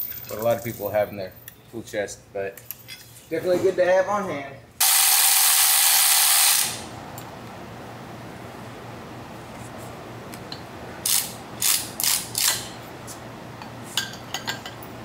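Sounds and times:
electric ratchet spinning bolt: 0:04.8 - 0:06.8, 0:11.0 - 0:12.7.

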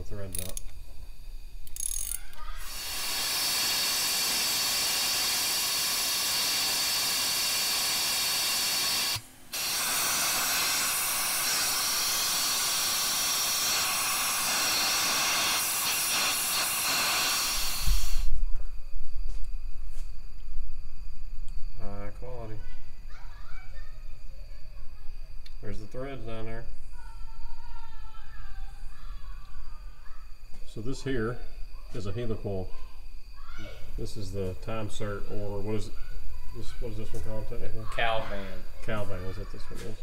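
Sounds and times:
compressed air hissing: 0:02.2 - 0:18.4.

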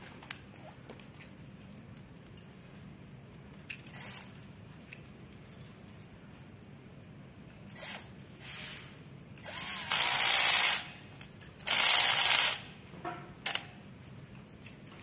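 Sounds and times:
cordless drill running: 0:09.4 - 0:10.9, 0:11.6 - 0:12.7.

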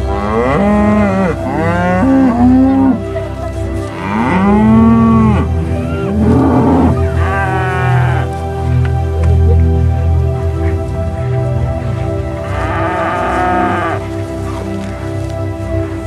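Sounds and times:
cattle mooing: 0:00.0 - 0:03.1, 0:03.9 - 0:08.3, 0:12.4 - 0:14.0.

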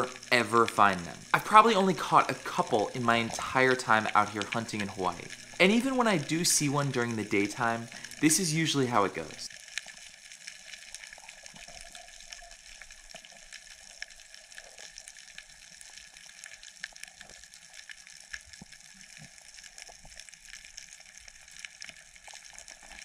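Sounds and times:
small clicks and crackles: 0:00.0 - 0:08.3, 0:09.1 - 0:23.0
faint underwater hiss: 0:00.0 - 0:09.5.

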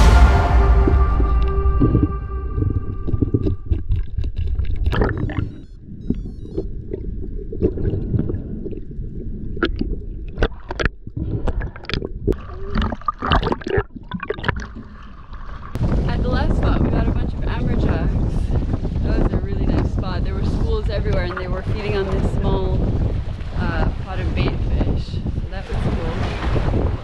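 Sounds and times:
water gurgling underwater: 0:00.8 - 0:18.2
sharp underwater clicks: 0:03.1 - 0:07.0.

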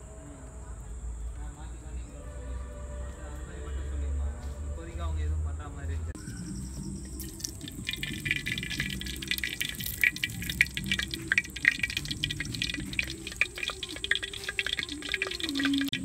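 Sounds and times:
oil crackling and popping: 0:07.1 - 0:16.0.

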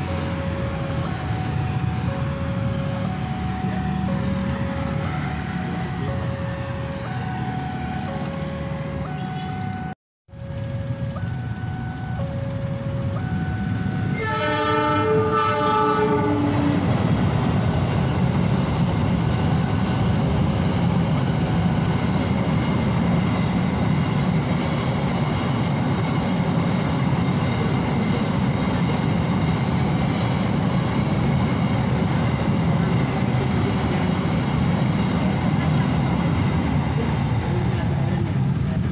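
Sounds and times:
freight train rumbling past: 0:00.0 - 0:09.8, 0:10.4 - 0:38.9
two-tone crossing warning signal: 0:00.0 - 0:38.8
locomotive horn: 0:09.0 - 0:09.9, 0:14.1 - 0:16.9.

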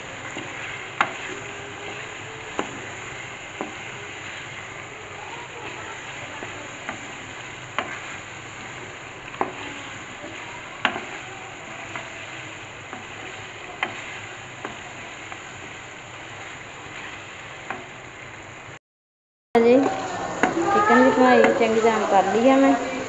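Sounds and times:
spatula stirring and scraping: 0:00.0 - 0:18.2
meat and spices sizzling in a pot: 0:00.0 - 0:18.8, 0:19.6 - 0:23.0.

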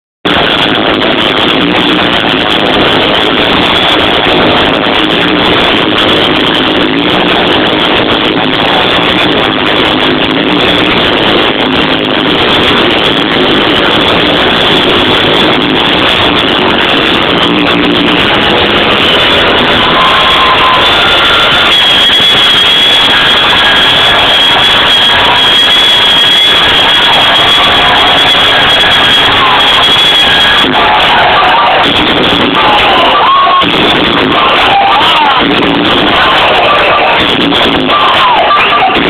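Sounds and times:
distorted electronic dance music: 0:00.2 - 0:39.0.

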